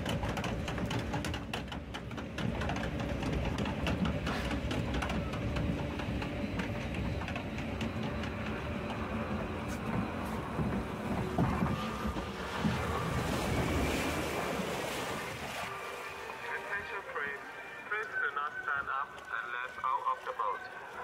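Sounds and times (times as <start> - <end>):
conveyor clicks and rattles: 0.0 - 14.2
steady mechanical hum: 0.0 - 15.6.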